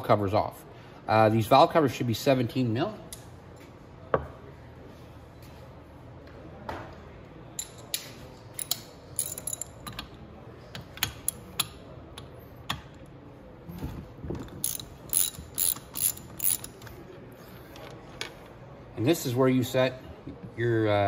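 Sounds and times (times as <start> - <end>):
ratchet wrench clicks: 8.6 - 10.0, 14.6 - 16.9.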